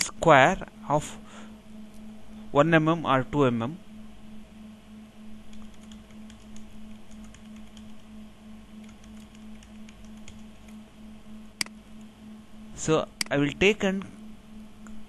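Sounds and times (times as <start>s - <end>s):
steady low hum: 0.0s - 15.0s
keyboard and mouse clicks: 5.5s - 8.0s.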